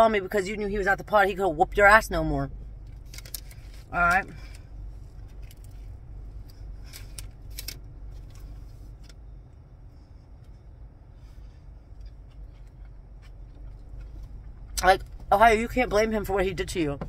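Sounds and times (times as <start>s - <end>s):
low rumble inside car cabin: 0.0s - 17.0s
person chewing food: 11.6s - 14.8s.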